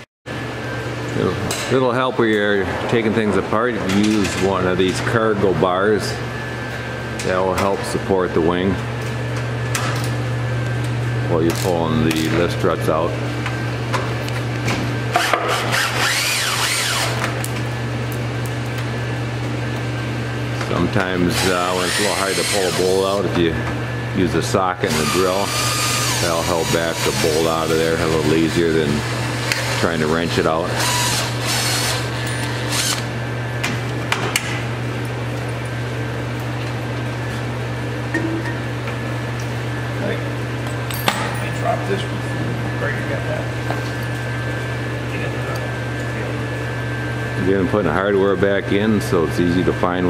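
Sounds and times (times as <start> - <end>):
furnace humming: 0.0 - 50.0
cordless drill motor whine: 15.2 - 17.2, 21.3 - 23.2, 24.9 - 33.1.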